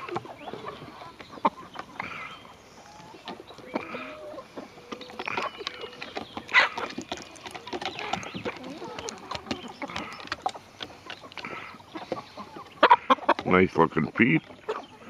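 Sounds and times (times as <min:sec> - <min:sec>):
hens clucking softly: 0:00.0 - 0:15.0
beaks tapping on wood: 0:05.0 - 0:12.3.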